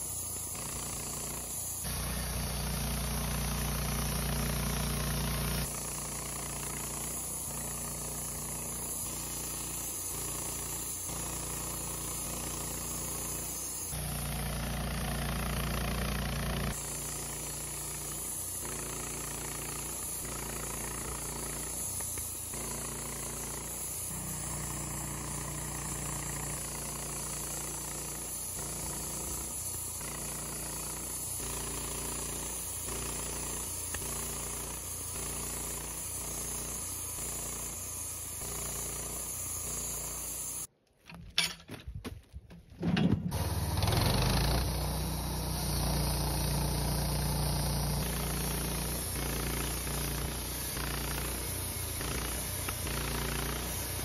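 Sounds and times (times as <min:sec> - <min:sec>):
bandsaw mill cutting log: 0:00.0 - 0:40.7, 0:43.3 - 0:54.0.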